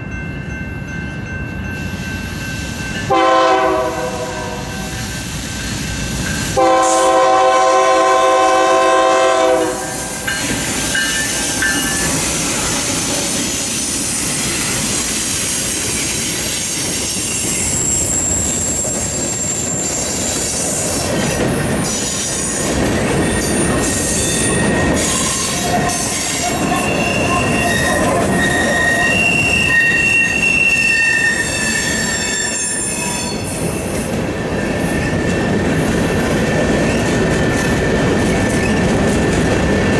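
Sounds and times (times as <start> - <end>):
freight train rumble and clatter: 0.0 - 39.9
train horn: 3.1 - 5.0, 6.6 - 10.2
wheel squeal: 23.2 - 33.7.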